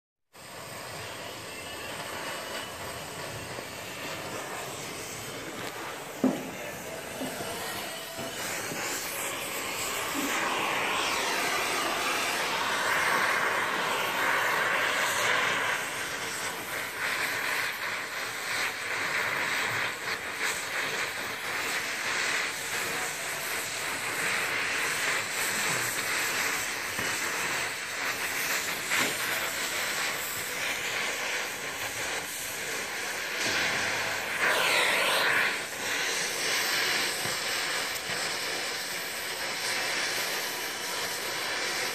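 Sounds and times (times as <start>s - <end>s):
welding torch flame hissing: 0.3s - 41.9s.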